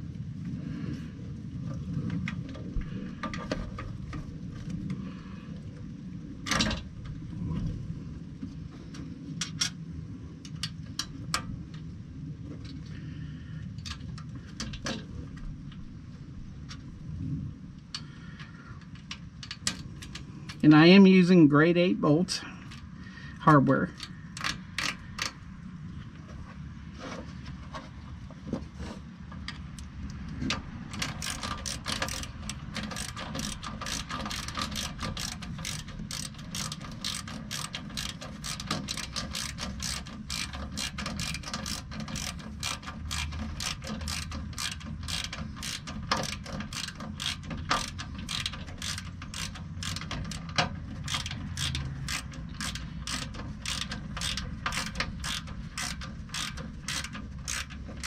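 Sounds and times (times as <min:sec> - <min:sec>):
hand ratchet clicking: 0:18.0 - 0:20.7, 0:23.9 - 0:25.4, 0:30.5 - 0:58.0.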